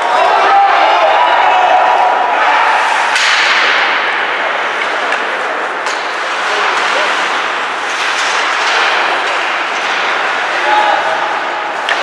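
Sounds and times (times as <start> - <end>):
hockey sticks and puck clacking: 3.0 - 12.0
skates on ice: 4.6 - 12.0.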